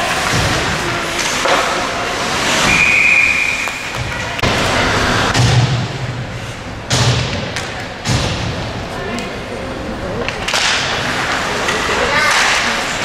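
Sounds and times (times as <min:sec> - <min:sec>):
ice rink noise: 0:00.0 - 0:13.0
referee's whistle: 0:02.7 - 0:03.8.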